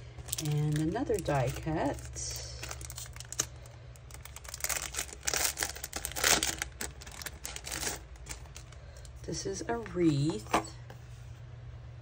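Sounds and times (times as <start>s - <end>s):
plastic packaging crinkling: 0.0s - 9.2s.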